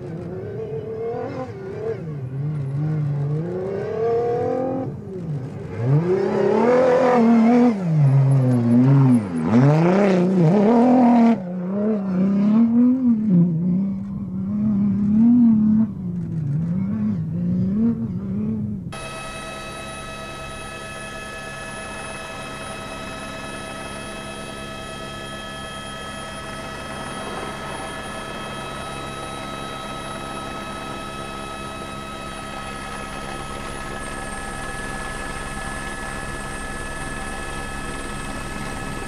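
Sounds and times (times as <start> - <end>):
helicopter rotor beat: 19.0 - 39.0
helicopter turbine whine: 19.0 - 39.0.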